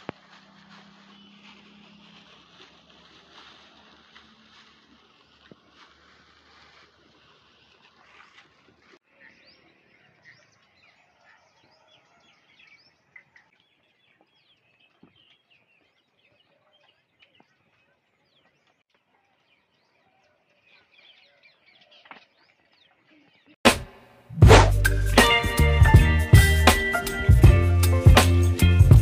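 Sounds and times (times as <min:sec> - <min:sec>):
small birds chirping: 0:00.7 - 0:02.8, 0:08.7 - 0:23.6
music: 0:23.7 - 0:29.0.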